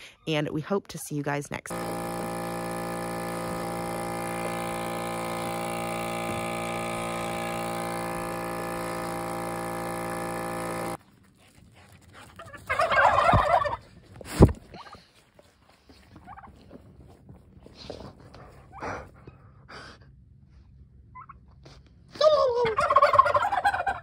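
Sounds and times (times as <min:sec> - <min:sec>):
milking machine pump humming: 0:01.7 - 0:11.0
turkey gobbling: 0:12.4 - 0:13.9, 0:16.2 - 0:16.6, 0:21.2 - 0:21.4, 0:22.6 - 0:24.0.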